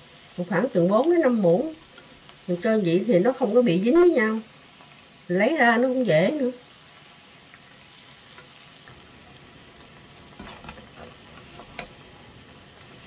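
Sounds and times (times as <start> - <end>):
food deep-frying in hot oil: 0.0 - 13.0.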